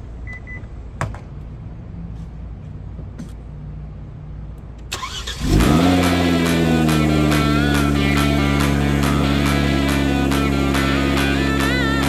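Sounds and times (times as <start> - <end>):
car engine idling: 4.9 - 12.0
music: 5.0 - 12.0.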